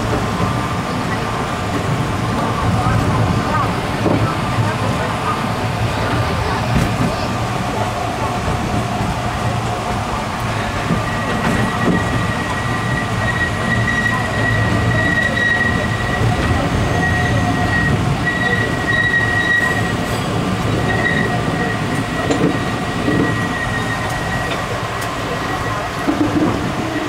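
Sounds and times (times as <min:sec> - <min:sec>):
carriages rumbling: 0:00.0 - 0:27.0
train wheels squealing: 0:11.0 - 0:27.0.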